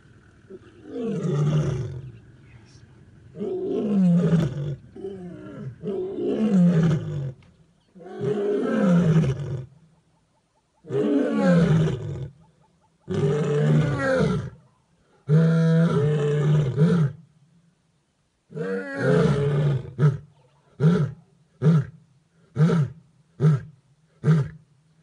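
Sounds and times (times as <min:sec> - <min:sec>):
lionesses roaring: 0:00.0 - 0:07.4, 0:08.0 - 0:09.8, 0:13.1 - 0:14.6.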